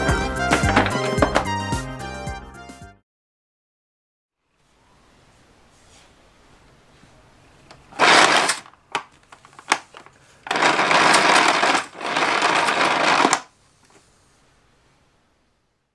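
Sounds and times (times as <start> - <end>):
vacuum cord reel rewinding: 7.9 - 8.7, 10.5 - 13.5.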